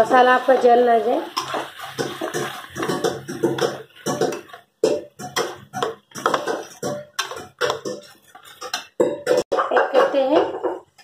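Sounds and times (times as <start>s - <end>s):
thick paste bubbling in a pot: 0.6s - 11.0s.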